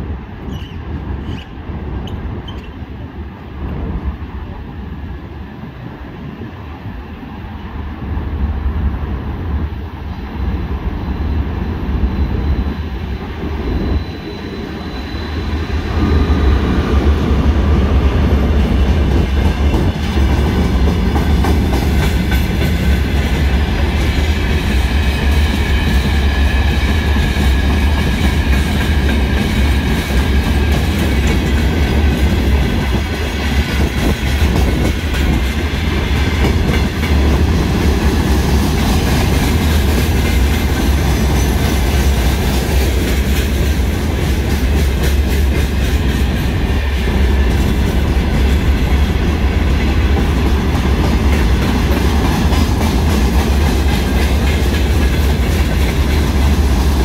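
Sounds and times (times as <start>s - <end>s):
diesel locomotive approaching: 0.0s - 57.0s
faint high wheel squeal: 0.5s - 2.9s, 10.2s - 17.0s
wheels clickety-clack: 19.1s - 57.0s.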